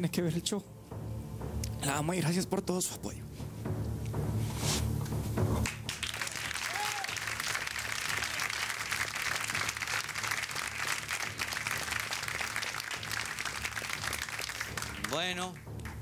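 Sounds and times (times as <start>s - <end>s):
audience applauding: 5.6s - 16.0s
person cheering: 6.4s - 7.3s.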